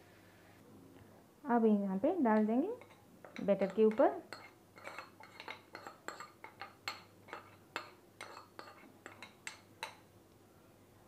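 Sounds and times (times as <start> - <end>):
steel spoon tapping metal pan: 2.8 - 10.0.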